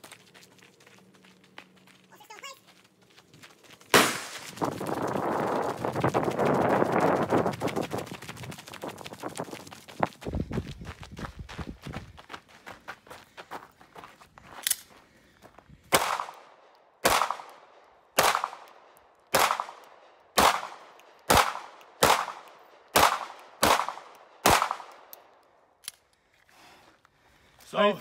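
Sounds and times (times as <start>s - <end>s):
pistol shots with echo: 4.0s - 4.4s, 15.9s - 25.1s.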